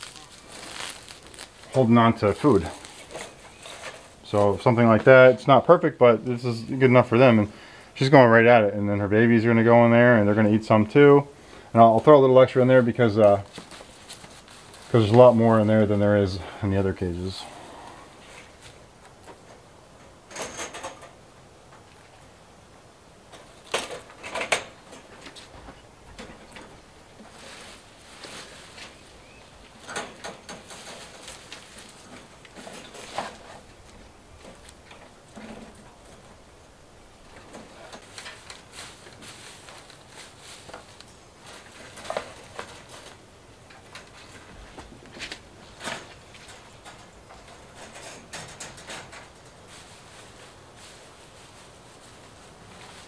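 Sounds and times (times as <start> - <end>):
grass rustling: 0.0 - 19.6, 23.3 - 53.0
wire cage rattling: 29.8 - 33.6, 45.8 - 49.6
light clicks and rattles: 40.7 - 49.7.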